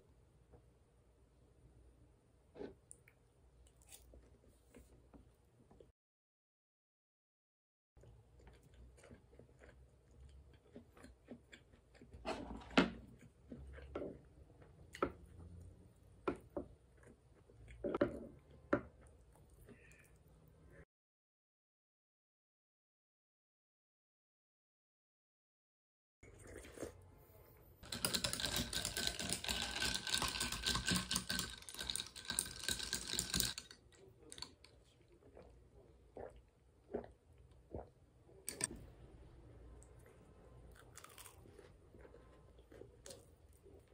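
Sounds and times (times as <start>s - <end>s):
chewing crispy food: 8.0s - 12.3s, 27.8s - 37.9s, 40.0s - 43.9s.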